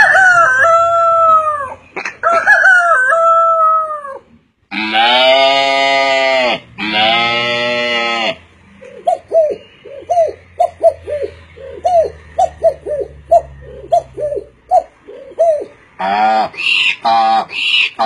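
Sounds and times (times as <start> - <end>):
man imitating pigeon cooing: 8.9 - 16.5.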